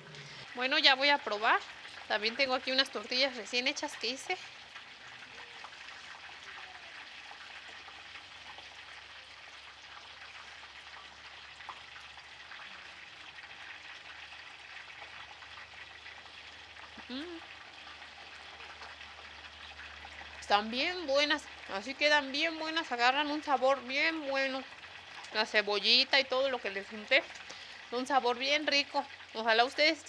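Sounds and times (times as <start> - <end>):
oil sizzling in a frying pan: 0.0 - 30.0
person humming: 17.0 - 17.4.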